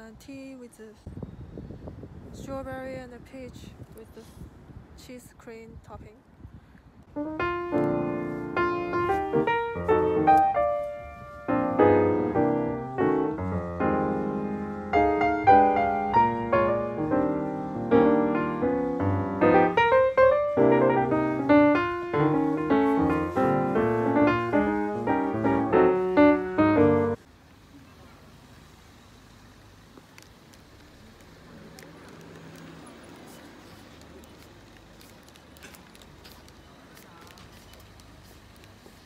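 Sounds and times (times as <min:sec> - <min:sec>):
piano music: 0:07.1 - 0:27.2.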